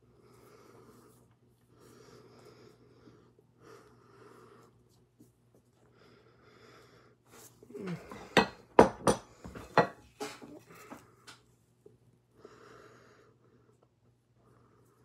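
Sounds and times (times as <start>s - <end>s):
ceramic plate clinking: 8.1s - 10.0s.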